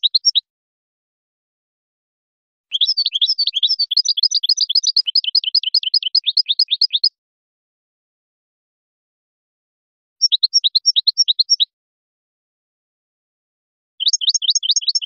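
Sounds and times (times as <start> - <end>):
finch singing: 0.0 - 0.4, 2.7 - 7.1, 10.2 - 11.7, 14.0 - 15.0.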